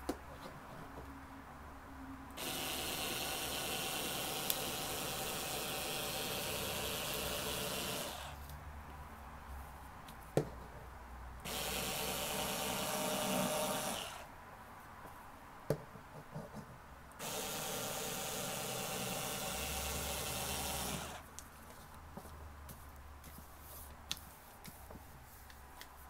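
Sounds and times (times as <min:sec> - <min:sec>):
cordless rotary cutter cutting fabric: 0:02.4 - 0:08.4, 0:11.4 - 0:14.3, 0:17.2 - 0:21.2.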